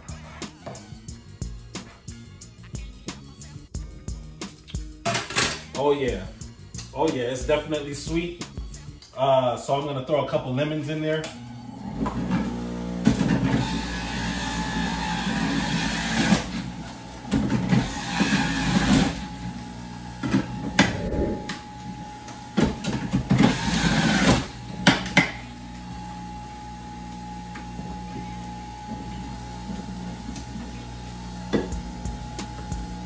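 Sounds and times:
juicer grinding lemons: 11.3s - 19.6s
juicer motor hum: 11.3s - 20.6s, 22.6s - 33.0s.

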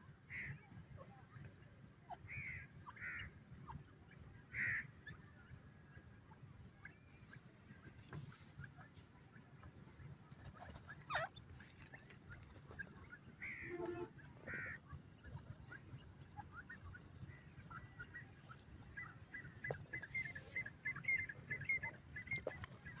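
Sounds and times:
francolins calling softly: 10.7s - 14.8s.

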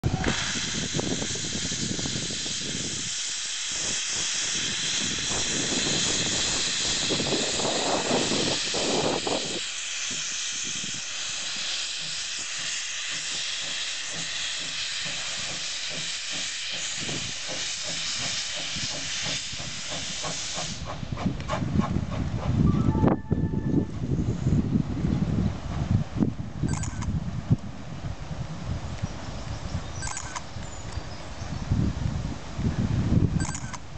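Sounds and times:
steam hissing from locomotive: 0.0s - 22.6s
steam locomotive chuffing: 0.0s - 22.7s.

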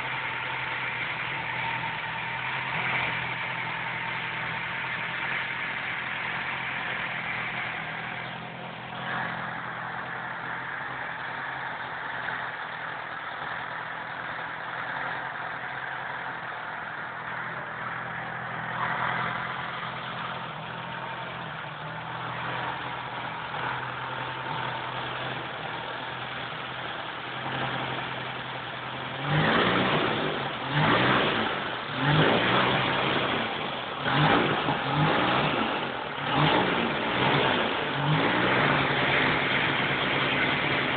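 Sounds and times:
engine running and revving: 0.0s - 40.9s.

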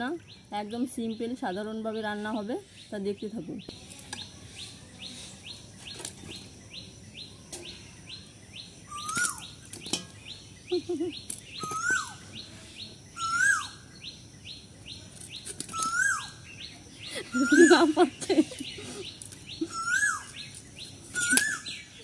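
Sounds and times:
bird high chirps: 0.2s - 22.0s
bird whistled call: 8.9s - 9.6s, 10.7s - 12.4s, 13.2s - 14.1s, 15.7s - 16.4s, 19.0s - 22.0s.

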